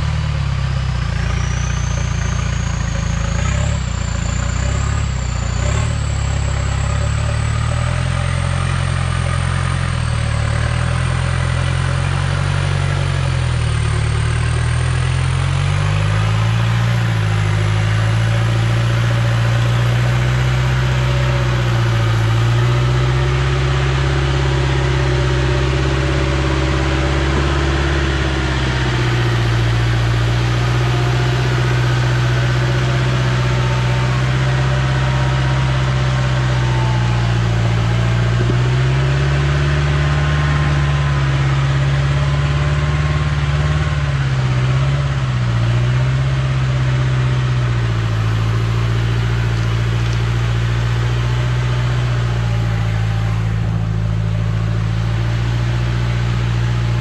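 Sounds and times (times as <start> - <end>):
pickup truck engine climbing: 0.0 - 57.0.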